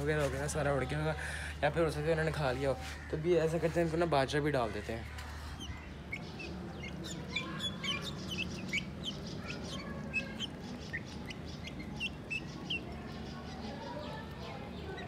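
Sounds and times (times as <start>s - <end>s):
low steady hum: 0.8s - 15.0s
chicks peeping: 5.4s - 15.0s.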